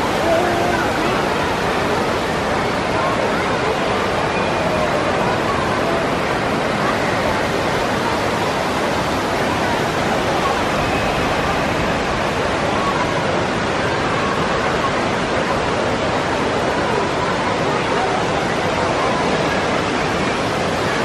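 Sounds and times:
rushing water hiss: 0.0 - 4.4, 5.0 - 17.4
faint distant voices: 0.0 - 21.0.

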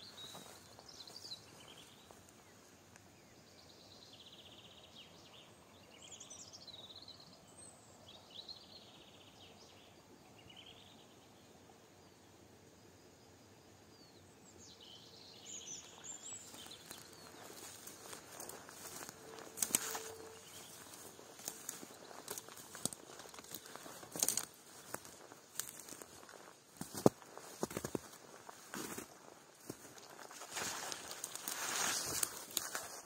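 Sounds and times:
songbirds trilling: 0.0 - 11.4, 13.9 - 33.0.

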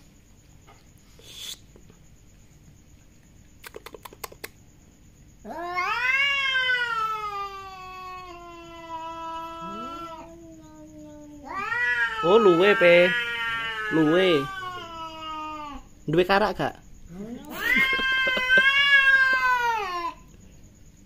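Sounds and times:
quick run of clicks: 3.6 - 4.6
cat yowling: 5.4 - 15.9, 17.2 - 20.3.

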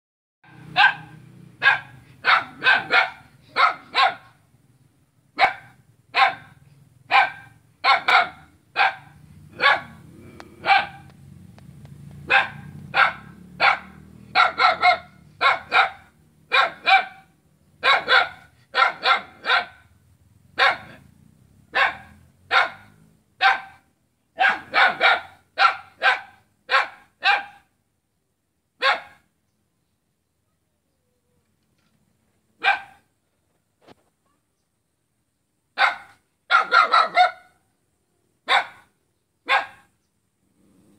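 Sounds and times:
small dog barking: 0.4 - 4.4, 5.4 - 11.1, 12.2 - 19.9, 20.6 - 21.1, 21.7 - 27.7, 28.8 - 29.3, 32.6 - 33.1, 35.8 - 37.6, 38.4 - 39.9.

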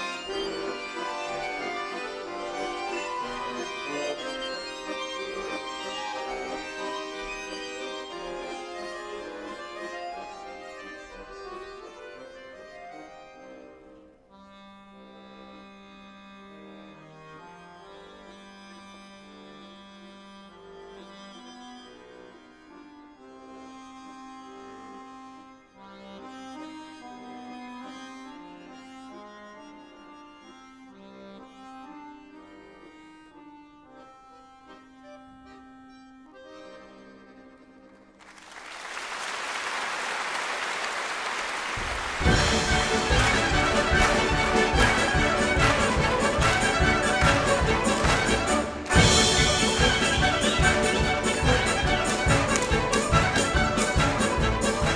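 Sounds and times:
button accordions playing: 0.0 - 38.4, 40.8 - 54.9.

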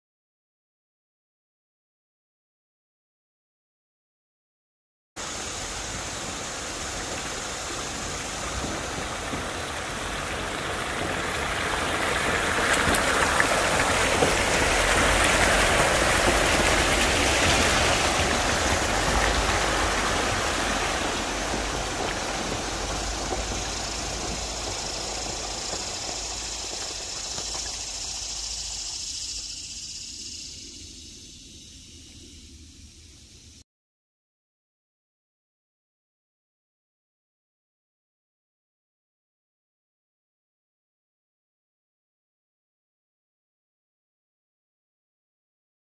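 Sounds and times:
engine running low: 5.2 - 33.6
tyres splashing through water: 5.3 - 29.4.

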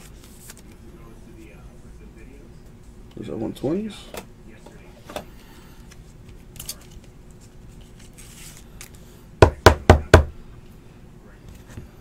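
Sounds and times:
cards rustling: 0.0 - 0.8, 5.8 - 9.1.

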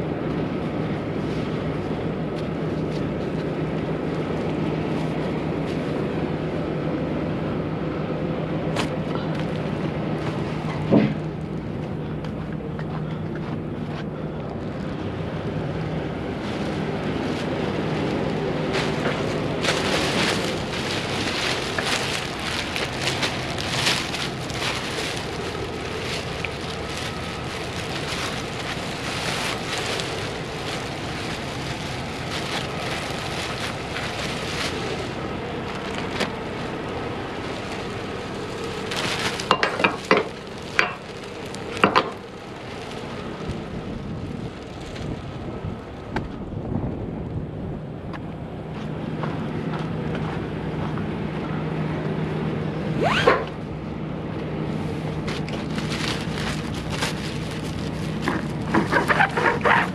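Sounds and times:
plastic sheeting crinkling: 16.0 - 46.1, 53.0 - 53.2, 54.7 - 59.9.

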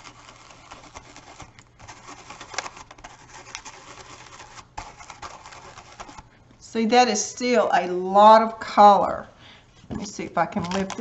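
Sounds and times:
stencil brush scratching: 0.0 - 6.3.

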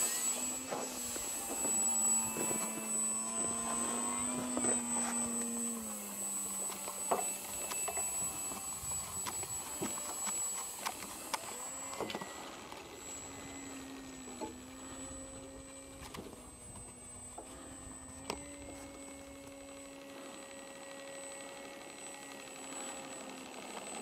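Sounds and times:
model plane motor humming: 0.0 - 24.0.

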